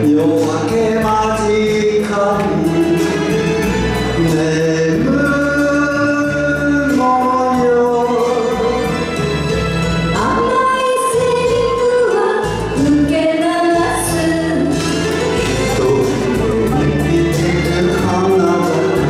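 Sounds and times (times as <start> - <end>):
man singing into microphone: 0.0 - 9.0, 15.4 - 19.0
recorded backing music: 0.0 - 19.0.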